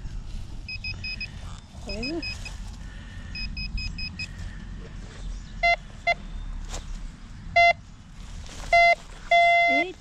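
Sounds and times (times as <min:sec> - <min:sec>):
metal detector beeps: 0:00.7 - 0:02.6, 0:03.3 - 0:04.4, 0:05.6 - 0:06.2, 0:07.6 - 0:07.8, 0:08.7 - 0:09.9.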